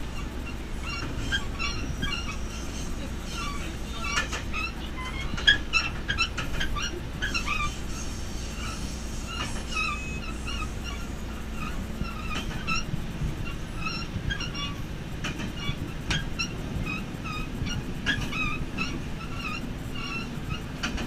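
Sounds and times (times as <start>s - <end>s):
railcar rumbling on track: 0.0s - 21.0s.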